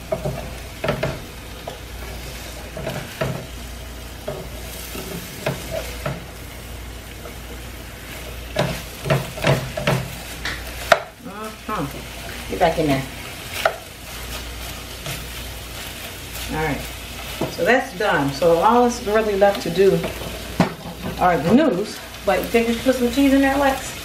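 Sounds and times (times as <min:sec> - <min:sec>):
food sizzling in a frying pan: 0:00.0 - 0:24.0
utensil scraping and knocking pan: 0:08.1 - 0:11.1.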